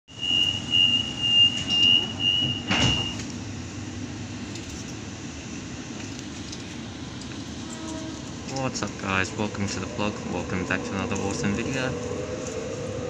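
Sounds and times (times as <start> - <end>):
high pulsing warning beep: 0.1 - 3.2
low rumble in train carriage: 0.1 - 13.0
sliding doors thumping shut: 1.6 - 3.3.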